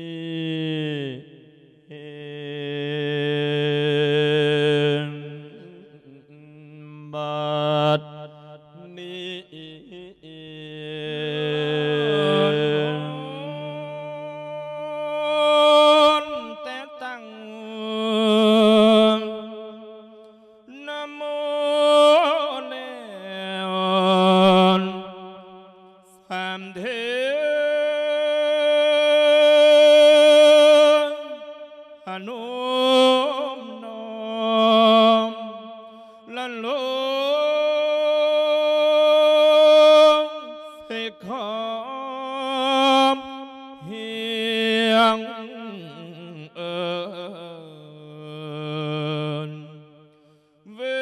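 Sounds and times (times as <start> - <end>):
monk chanting solo: 0.0 - 51.0.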